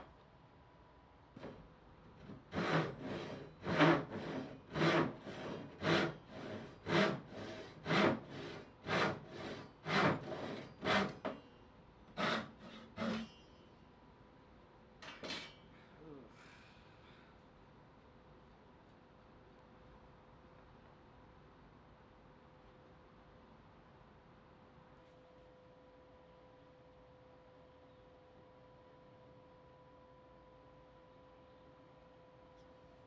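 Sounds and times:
hand saw cutting wood: 2.3s - 11.4s, 12.2s - 13.3s.

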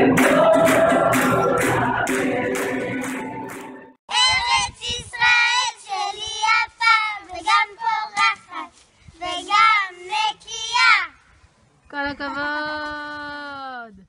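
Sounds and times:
group singing: 0.0s - 4.6s
girls singing: 0.0s - 10.8s
hand clapping: 0.1s - 3.8s.

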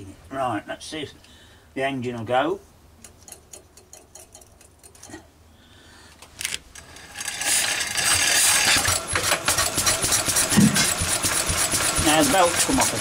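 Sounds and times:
petrol engine running with clatter: 7.4s - 13.0s.

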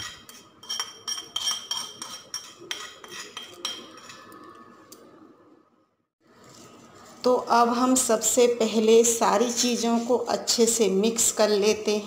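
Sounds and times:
spoon clinking in metal pan: 0.0s - 4.2s.

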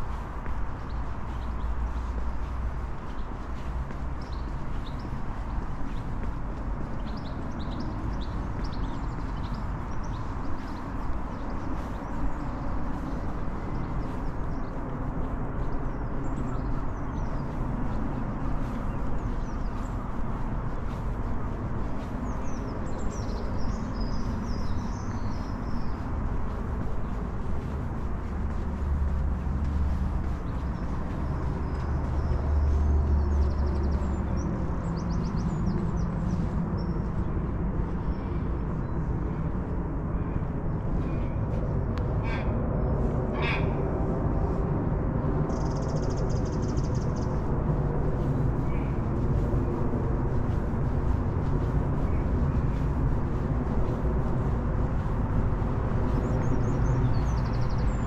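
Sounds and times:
low city rumble: 0.0s - 58.0s
harsh bird calls: 42.1s - 44.5s.

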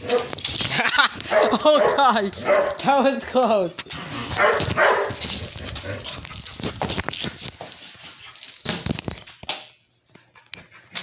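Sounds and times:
puppy scuffling and rustling: 4.4s - 9.3s.

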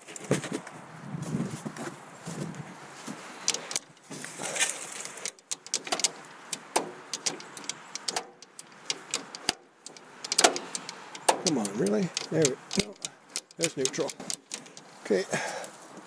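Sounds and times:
tractor control levers clicking: 3.4s - 15.0s.

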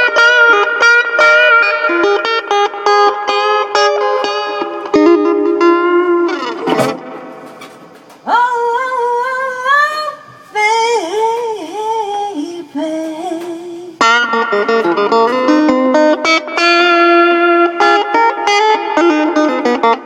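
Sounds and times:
guitar chords: 0.0s - 9.1s, 11.3s - 20.0s
person singing long held notes: 8.3s - 14.0s.

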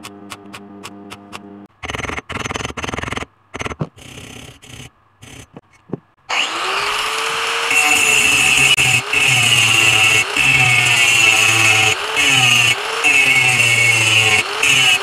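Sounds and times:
angle grinder spinning: 6.3s - 15.0s.

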